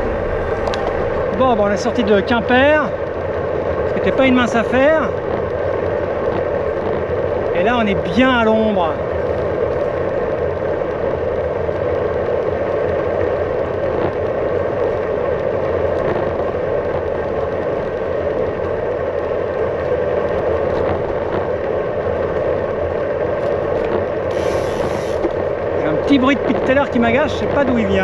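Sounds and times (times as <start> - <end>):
wind rushing over microphone: 0.0 - 7.6
tyres humming on tarmac: 0.0 - 28.0.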